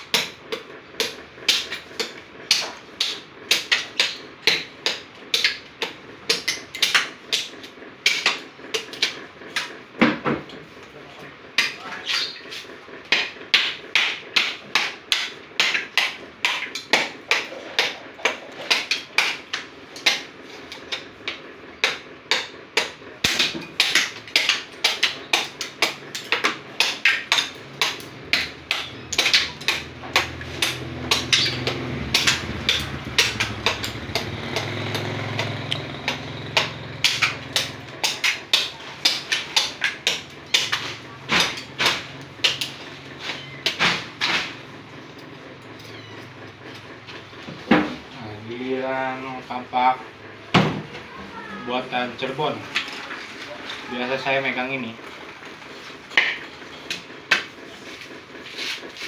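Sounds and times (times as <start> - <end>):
hatchet chopping coconut shell: 0.0 - 10.6, 11.5 - 44.6, 56.1 - 59.0.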